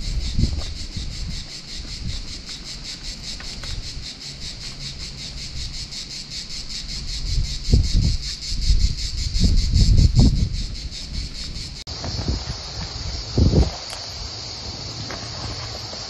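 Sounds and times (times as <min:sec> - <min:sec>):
cicadas buzzing in pulses: 0:00.0 - 0:16.0
low microphone rumble: 0:07.0 - 0:12.5.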